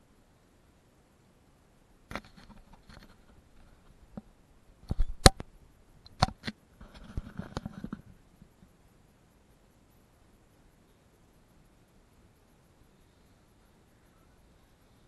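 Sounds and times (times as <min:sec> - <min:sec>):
rustling scrape: 0:06.8 - 0:08.1.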